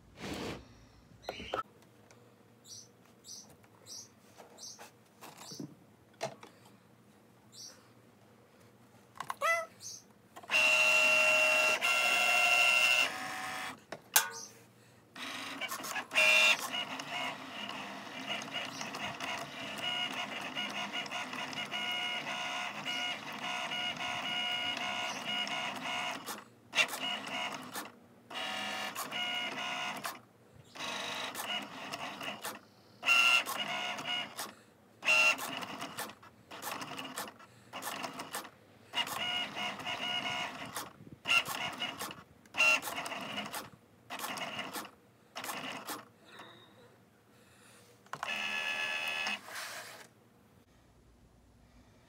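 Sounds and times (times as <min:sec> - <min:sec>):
cutting machine motors whining: 0:10.4 - 0:13.8.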